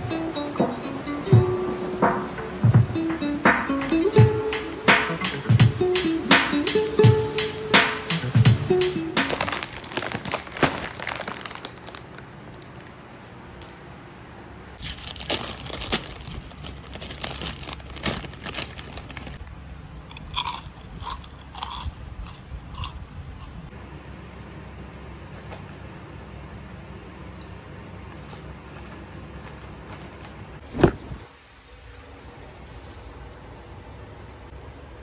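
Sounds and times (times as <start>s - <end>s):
plastic chip bags crinkling: 9.2s - 13.0s, 14.8s - 19.5s.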